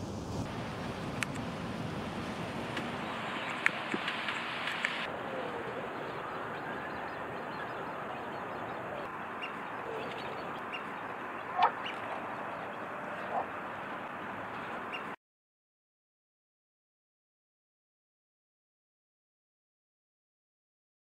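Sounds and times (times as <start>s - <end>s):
steady outdoor hiss: 0.0s - 15.2s
bird calls: 2.7s - 15.2s.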